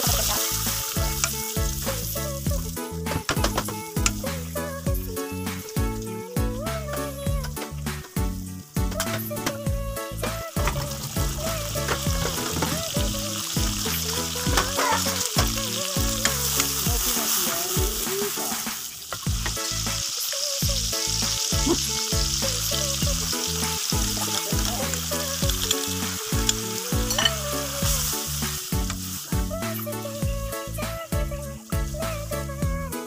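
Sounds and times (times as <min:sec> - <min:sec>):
paste sizzling in hot oil: 0:00.0 - 0:06.1, 0:07.8 - 0:32.5
background music with a beat: 0:00.0 - 0:33.0.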